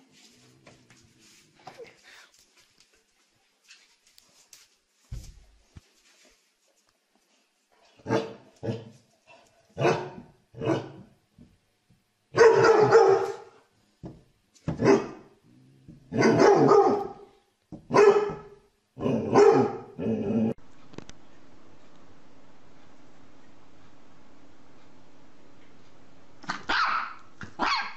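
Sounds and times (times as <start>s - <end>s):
dog barking: 8.0s - 8.9s, 9.8s - 11.0s, 12.3s - 13.6s, 14.8s - 15.3s, 16.1s - 17.3s, 17.9s - 20.0s, 26.5s - 27.9s.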